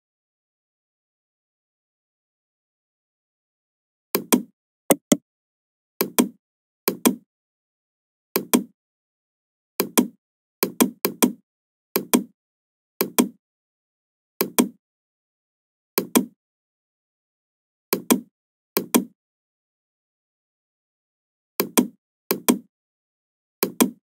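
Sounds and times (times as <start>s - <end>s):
mouse button clicks: 4.9s - 5.2s.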